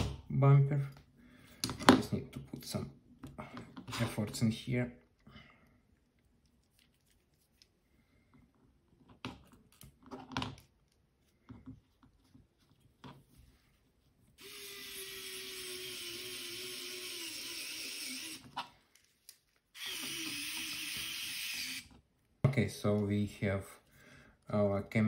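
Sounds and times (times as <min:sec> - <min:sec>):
electric screwdriver running: 0:14.4 - 0:18.5, 0:19.8 - 0:21.9.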